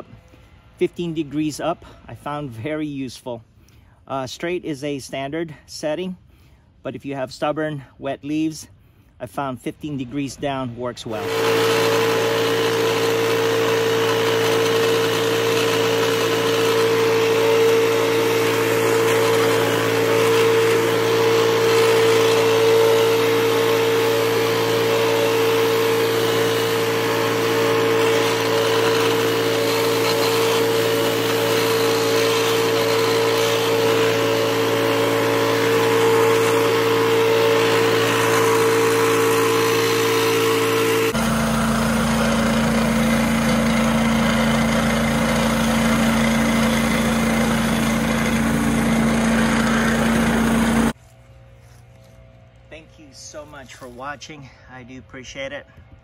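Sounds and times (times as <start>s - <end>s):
leaf blower engine drone: 11.0s - 54.8s.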